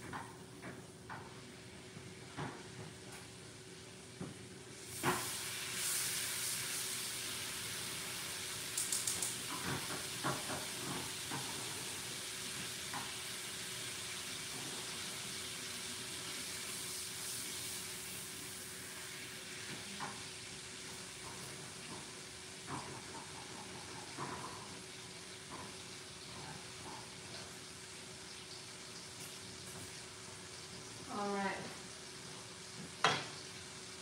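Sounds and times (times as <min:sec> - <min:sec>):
butter sizzling in frying pan: 0:00.0 - 0:34.0
utensil clicking against pan: 0:08.7 - 0:10.7.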